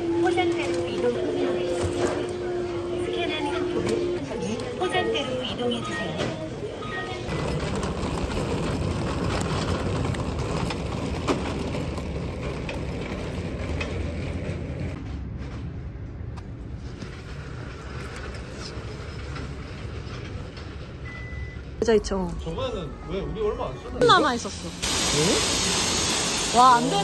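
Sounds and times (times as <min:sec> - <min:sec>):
shopping cart rattling on concrete: 0:07.3 - 0:15.0.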